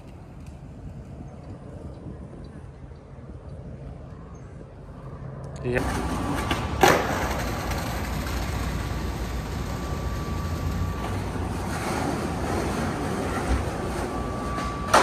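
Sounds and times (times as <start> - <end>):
skateboard wheels rolling on pavement: 0.0 - 15.0
sharp skateboard clack: 5.8 - 8.6.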